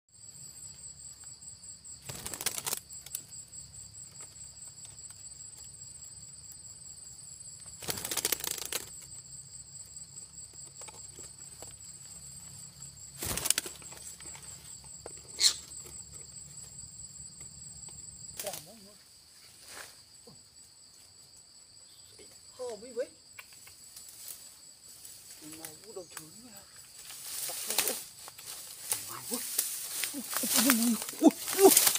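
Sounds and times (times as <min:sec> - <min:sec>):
insects trilling: 0:00.1 - 0:31.9
sharp click-like chirp: 0:23.3 - 0:23.8.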